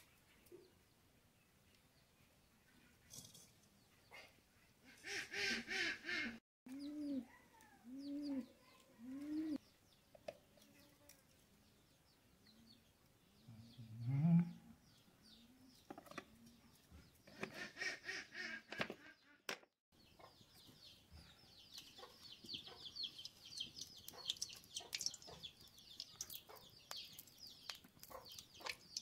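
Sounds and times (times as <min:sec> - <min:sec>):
farmyard birds calling: 0:04.0 - 0:10.1, 0:12.1 - 0:19.4, 0:20.0 - 0:29.0.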